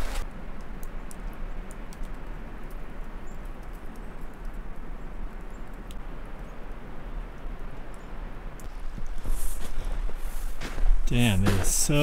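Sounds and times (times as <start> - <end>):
footsteps crunching on snow: 8.7 - 12.0.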